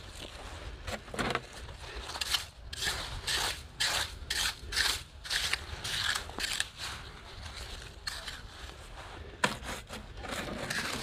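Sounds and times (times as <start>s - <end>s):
rake scraping wet sand: 2.2s - 7.0s, 9.5s - 11.0s.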